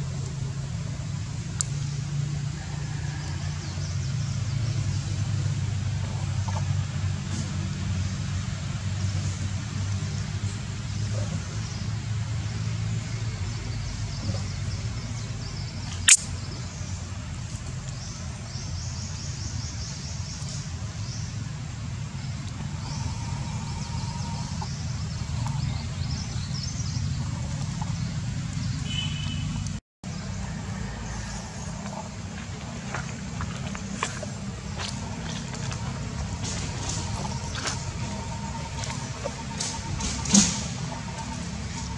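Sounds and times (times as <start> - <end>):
low outdoor rumble: 0.0 - 41.9
sharp click: 16.0 - 16.3.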